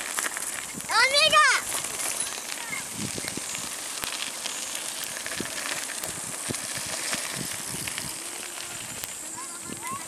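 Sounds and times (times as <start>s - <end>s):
bike tyres crunching over gravel: 0.0s - 10.0s
steady high-pitched hiss: 0.0s - 10.0s.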